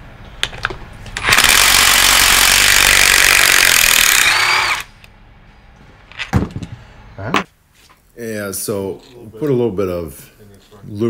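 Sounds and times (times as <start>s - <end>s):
cordless impact driver running: 1.2s - 4.9s.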